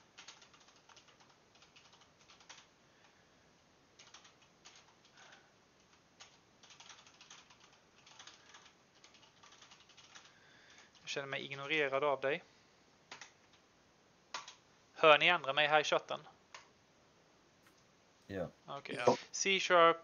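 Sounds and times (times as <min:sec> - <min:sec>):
keyboard typing: 0:00.1 - 0:02.7, 0:04.0 - 0:11.0, 0:13.1 - 0:13.6, 0:14.3 - 0:14.6.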